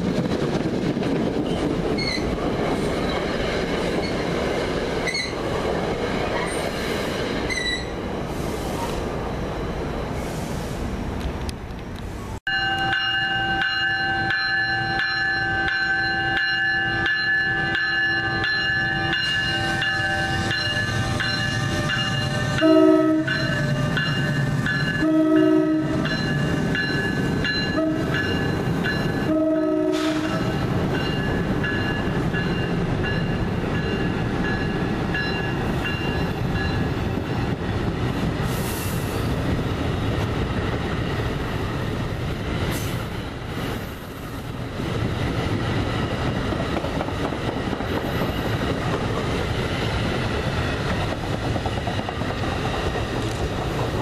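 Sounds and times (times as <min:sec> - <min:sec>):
train coaches rumbling on rails: 0:00.0 - 0:54.0
train horn blasts: 0:19.6 - 0:23.9, 0:24.9 - 0:26.2, 0:27.6 - 0:28.4, 0:29.2 - 0:30.6.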